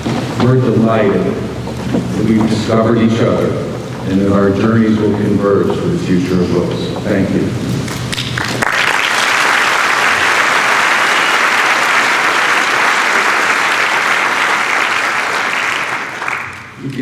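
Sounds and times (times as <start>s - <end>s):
audience applause: 8.1s - 16.9s.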